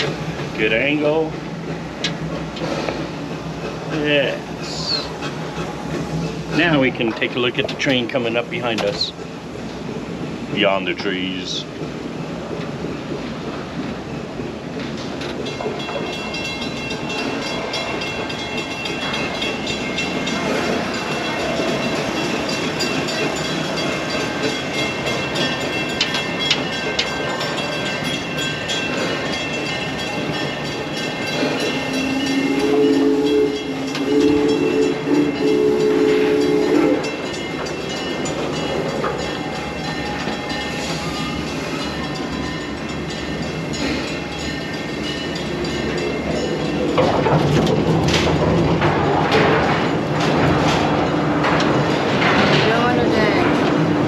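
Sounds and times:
train rumbling along track: 0.0 - 54.0
train horn two-note blasts: 32.2 - 37.0.

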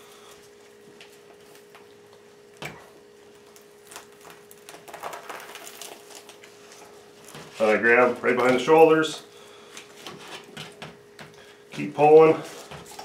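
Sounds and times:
faint steady hum: 0.0 - 13.0
wet squishing and crackling: 3.3 - 7.6.

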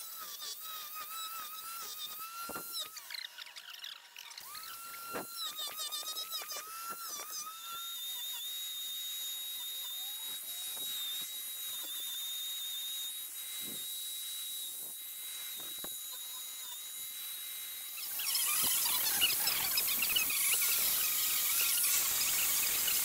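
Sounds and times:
angle grinder whining: 0.0 - 23.0.

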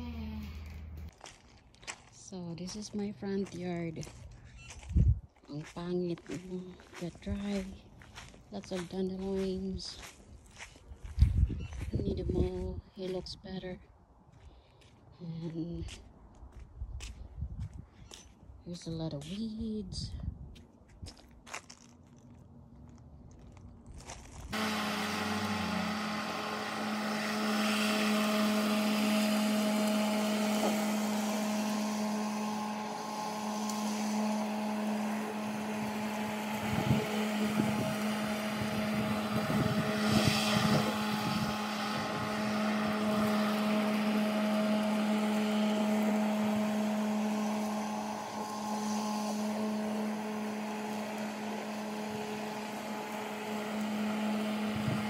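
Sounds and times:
lawn mower humming: 0.0 - 4.9, 5.6 - 11.2, 24.5 - 55.0.

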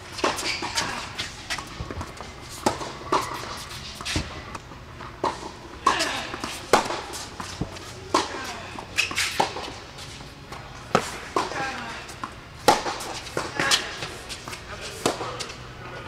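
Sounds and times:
tennis ball hitting rackets: 0.1 - 15.6
shoe squeaks: 0.4 - 4.5, 7.4 - 10.2.

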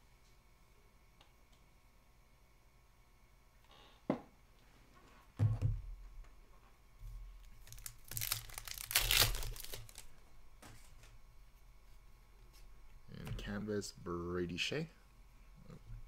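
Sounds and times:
thump: 5.4 - 5.8
card pack wrapper tearing: 7.5 - 10.2.

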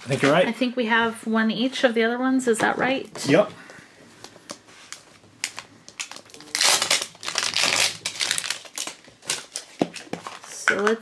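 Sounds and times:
plastic crinkling and crackling: 4.2 - 10.8.

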